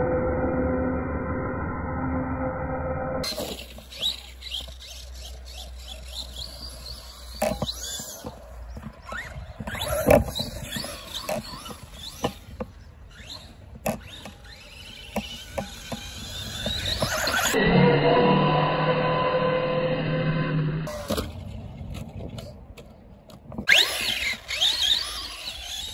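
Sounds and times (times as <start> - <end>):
electric motor whining: 3.2 - 21.3, 23.7 - 25.9.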